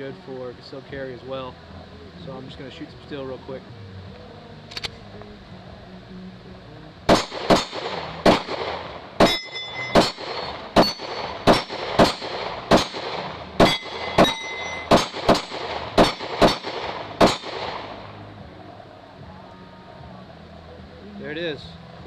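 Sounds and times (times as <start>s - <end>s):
pistol shots: 7.1s - 18.2s
steel targets ringing: 9.2s - 13.0s, 13.6s - 17.5s.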